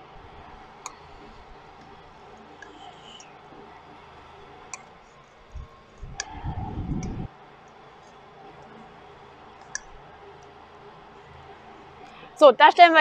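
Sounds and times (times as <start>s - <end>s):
low rumble on microphone: 5.5s - 7.3s.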